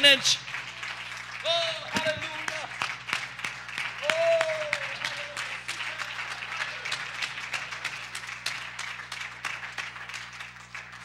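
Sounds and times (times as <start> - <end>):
crowd clapping and applauding: 0.0 - 11.0.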